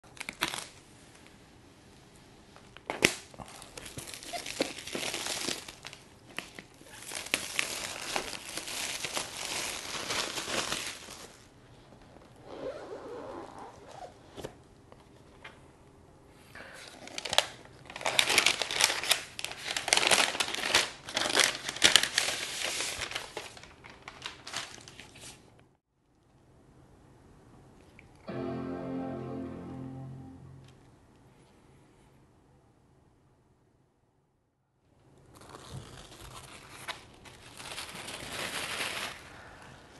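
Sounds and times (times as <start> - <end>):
packaging crinkling: 0.1 - 0.8, 2.8 - 11.5, 16.8 - 25.4, 35.3 - 39.3.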